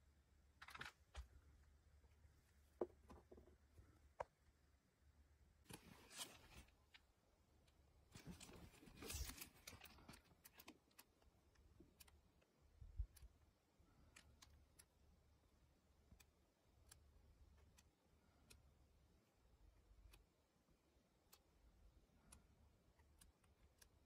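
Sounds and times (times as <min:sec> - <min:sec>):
paper pages turning: 0:00.6 - 0:01.3, 0:05.7 - 0:07.0, 0:08.2 - 0:10.7.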